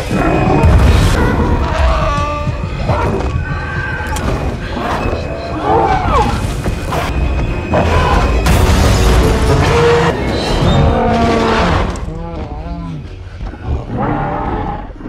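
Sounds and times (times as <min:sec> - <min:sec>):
deep booming rumble and impacts: 0:00.0 - 0:04.8
tense music with high tone: 0:00.0 - 0:14.4
heavy crash: 0:08.2 - 0:12.0.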